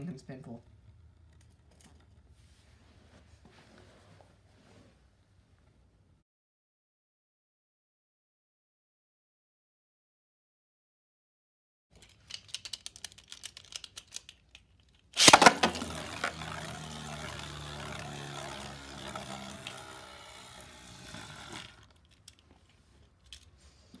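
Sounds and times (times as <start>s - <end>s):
spinning top clicking: 12.0s - 22.4s
spinning top whirring: 15.0s - 22.4s
spinning top rasp: 15.1s - 22.2s.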